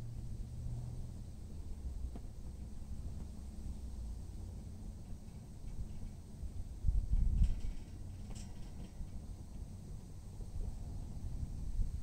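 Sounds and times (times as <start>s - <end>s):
wind buffeting the microphone: 5.7s - 9.3s, 10.2s - 12.0s.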